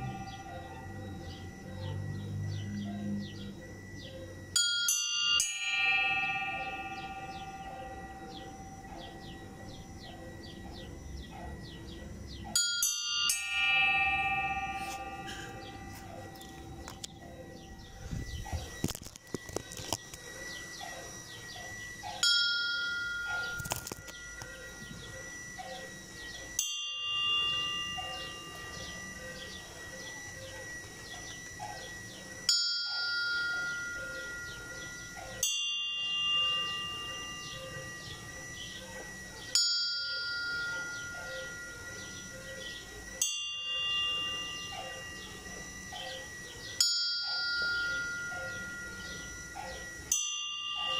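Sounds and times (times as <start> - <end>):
church bells tolling: 0.0 - 19.0, 19.8 - 50.9.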